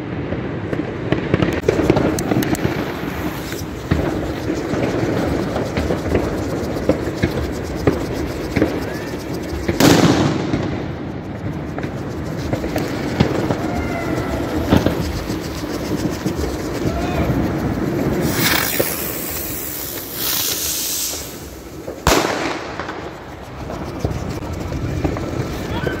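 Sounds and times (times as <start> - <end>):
firecrackers cracking: 0.0 - 26.0
fireworks hissing: 0.1 - 26.0
loud firework bang: 8.6 - 11.1, 21.0 - 23.2.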